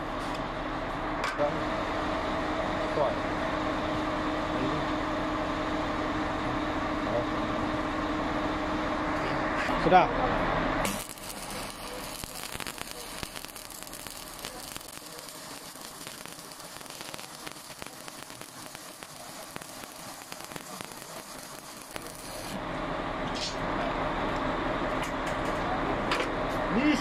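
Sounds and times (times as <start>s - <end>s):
welding arc crackling: 10.8s - 22.8s.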